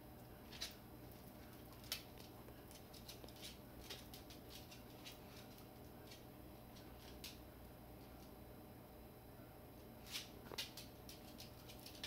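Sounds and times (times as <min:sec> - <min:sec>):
faint clicks and scratches: 0:10.0 - 0:12.0.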